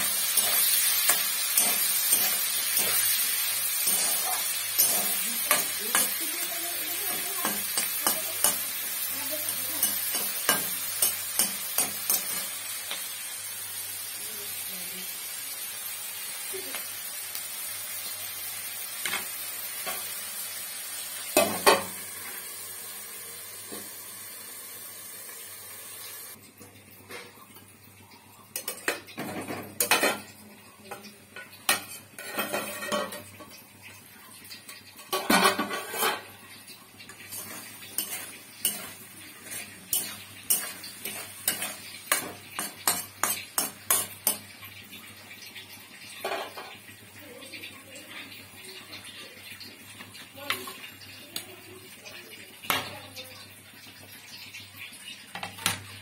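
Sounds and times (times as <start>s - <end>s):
metal spatula scraping a pan: 0.0s - 13.1s, 31.7s - 33.4s, 35.0s - 36.4s, 37.1s - 44.5s
steady sizzle: 0.0s - 56.0s.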